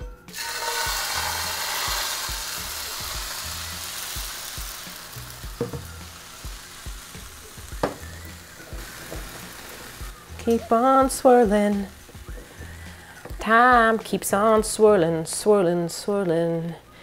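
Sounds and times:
batter sizzling in frying pan: 0.3 - 13.1.

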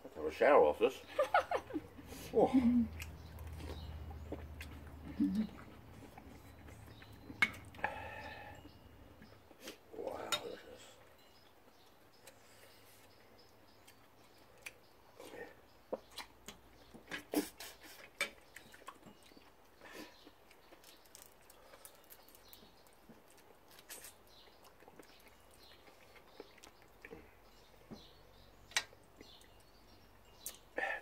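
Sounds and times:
chewing and mouth smacks: 2.9 - 7.8, 15.9 - 27.3
prawns being peeled by hand: 20.6 - 24.2.

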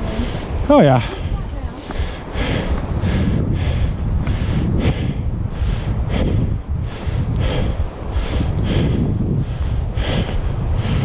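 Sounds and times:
footsteps on dirt trail: 0.0 - 5.0
wind rumble on microphone: 0.0 - 11.0
person breathing hard: 0.1 - 11.0.

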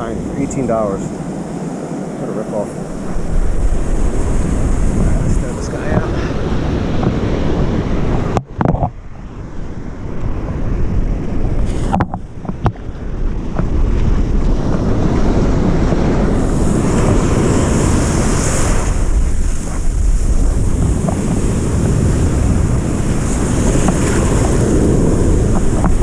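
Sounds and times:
ocean surf hissing: 0.0 - 8.1, 11.6 - 12.0, 16.1 - 26.0
wind buffeting microphone: 0.0 - 26.0.

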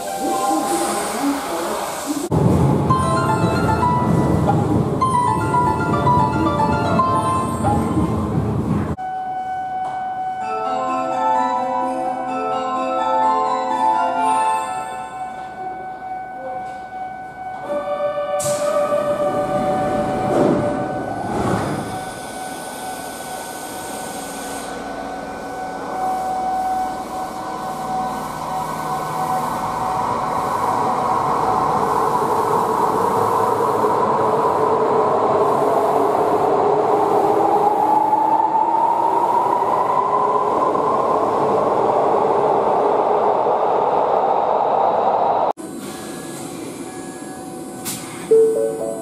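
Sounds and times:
subway train rumble: 0.0 - 49.0
train doors shutting: 16.4 - 40.0, 45.6 - 49.0.

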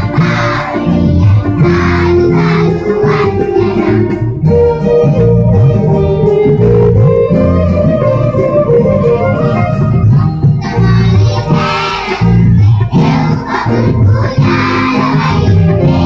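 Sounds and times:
children singing: 0.0 - 5.3, 10.2 - 16.0
keyboard-led music with bass: 0.0 - 16.0.

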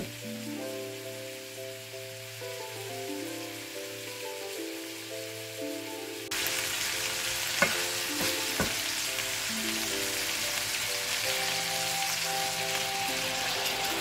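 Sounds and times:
background music: 0.0 - 14.0
chicken sizzling in pan: 0.0 - 14.0
spatula knocking against pan: 7.6 - 8.8.

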